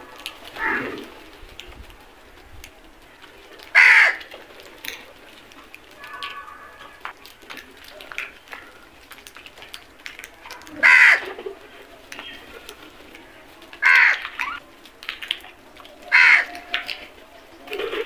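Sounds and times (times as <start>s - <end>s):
crows cawing: 0.2s - 1.0s, 3.7s - 4.3s, 6.0s - 7.1s, 10.6s - 11.4s, 13.8s - 14.6s, 16.1s - 16.9s.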